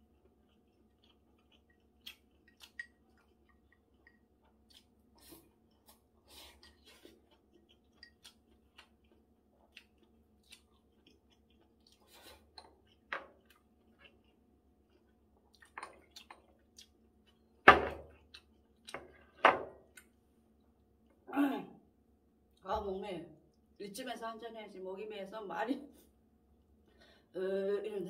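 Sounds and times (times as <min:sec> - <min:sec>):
faint chewing: 0:00.0 - 0:21.2.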